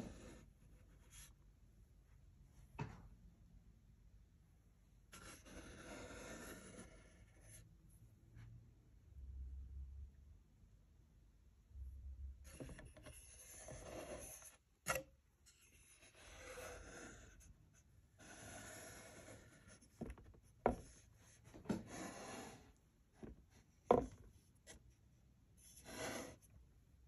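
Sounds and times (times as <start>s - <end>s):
rubbing and scraping on tabletop: 0.0s - 1.4s, 5.2s - 7.7s, 12.5s - 24.9s, 25.6s - 26.6s.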